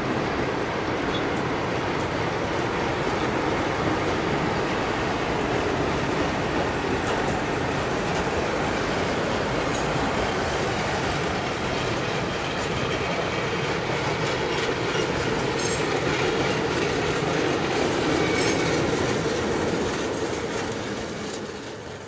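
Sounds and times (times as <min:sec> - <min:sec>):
train wheels rumbling on rail: 0:00.0 - 0:22.0
faint high wheel squeal: 0:18.0 - 0:19.1.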